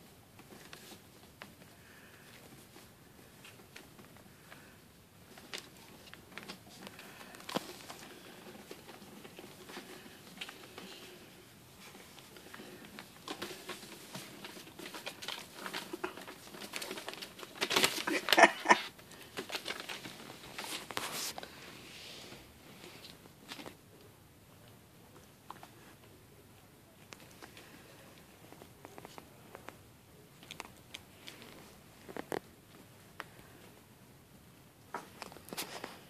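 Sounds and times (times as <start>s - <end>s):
newspaper rustling and crinkling: 11.8s - 21.6s.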